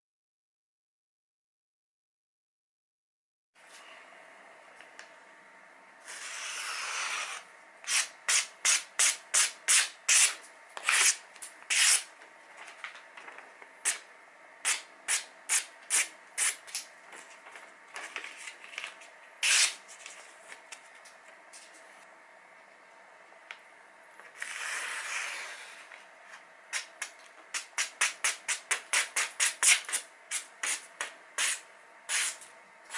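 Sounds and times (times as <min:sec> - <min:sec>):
knife slicing paper: 0:06.1 - 0:12.1, 0:19.4 - 0:20.1, 0:31.4 - 0:32.4
paper page rustling: 0:17.1 - 0:21.9.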